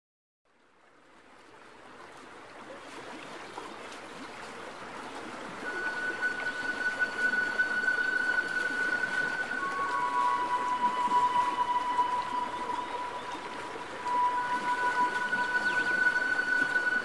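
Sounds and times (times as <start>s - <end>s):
rushing stream-like noise: 0.5s - 17.0s
steady high tone: 5.6s - 17.0s.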